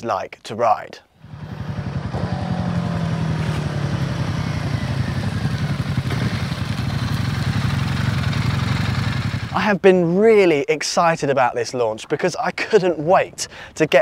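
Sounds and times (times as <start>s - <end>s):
motorcycle engine running: 1.2s - 9.6s.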